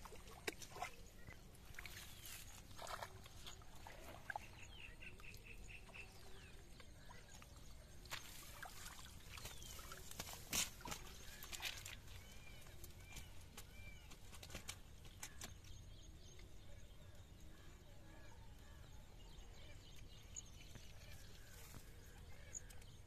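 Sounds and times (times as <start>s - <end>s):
water splashing and dripping: 0.0s - 4.4s, 6.8s - 15.6s.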